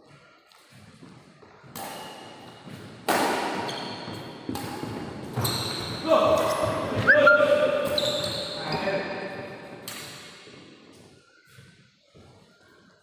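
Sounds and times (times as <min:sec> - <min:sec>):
rackets hitting shuttlecock: 0:01.6 - 0:08.3.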